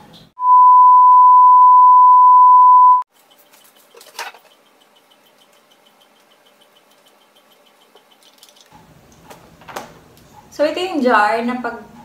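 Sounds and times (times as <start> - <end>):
electronic beep tone: 0.4 - 3.0.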